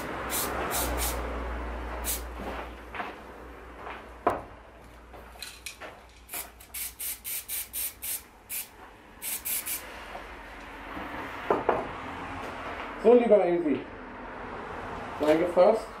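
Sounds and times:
spray can hissing puffs: 0.0 - 1.2, 2.0 - 2.3, 6.3 - 9.9
knock: 11.5 - 11.9.

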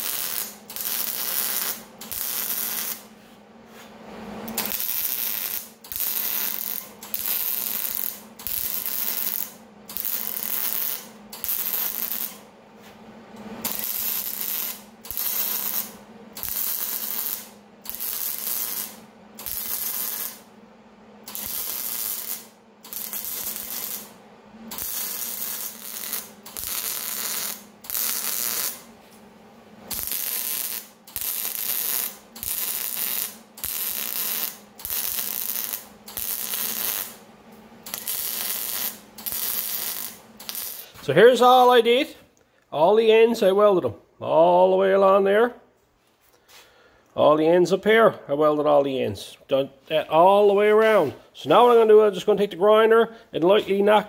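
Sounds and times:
welding arc bursts: 0.0 - 3.1, 4.5 - 12.4, 13.6 - 20.5, 21.2 - 28.9, 29.9 - 37.2, 37.8 - 41.8
low steady hum: 0.0 - 31.2.

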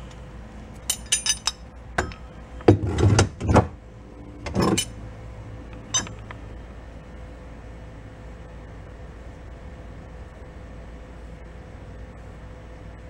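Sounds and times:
metal gearbox case knocks and scrapes: 2.0 - 3.8.

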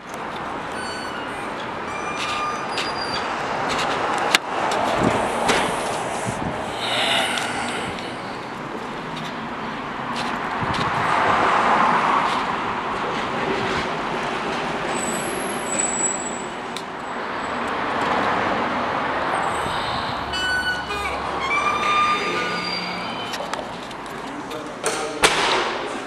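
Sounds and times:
street traffic passing: 0.0 - 26.0
brief high squeal: 0.7 - 3.3, 19.5 - 23.5.

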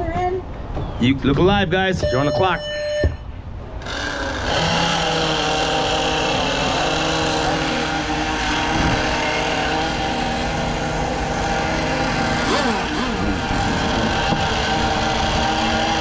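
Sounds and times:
model boat engines running: 3.8 - 16.0.

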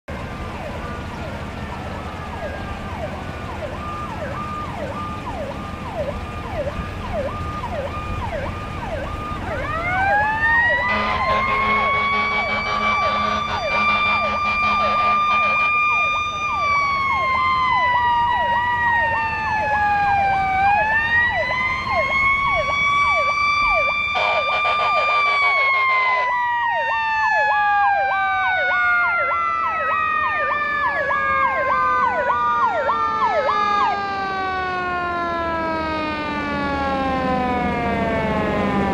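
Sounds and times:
electronic yelp siren: 0.1 - 38.9
mechanical siren wailing: 0.1 - 38.9
air horn blasts: 10.8 - 15.9, 24.2 - 26.3.

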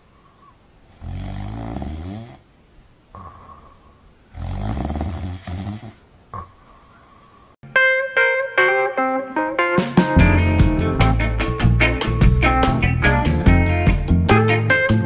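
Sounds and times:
dog snoring: 0.9 - 2.4, 3.2 - 6.5
snuffling breaths: 3.1 - 7.6.

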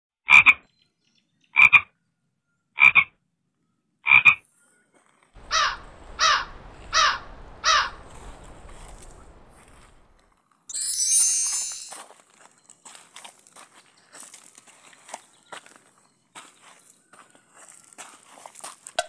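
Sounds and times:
frog croaking: 0.3 - 0.6, 1.6 - 1.9, 2.8 - 3.2, 4.0 - 4.4, 5.4 - 10.2
faint background hiss: 5.4 - 10.3.

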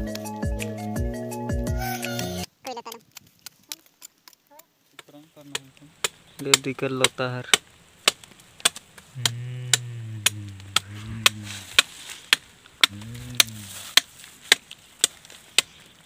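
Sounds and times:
digging tool striking earth: 5.0 - 15.8
man humming: 9.1 - 11.9, 12.8 - 13.8.

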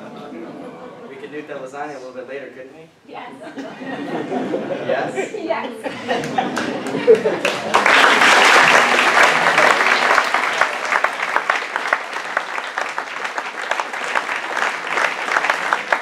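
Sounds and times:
audience applauding: 6.1 - 16.0.

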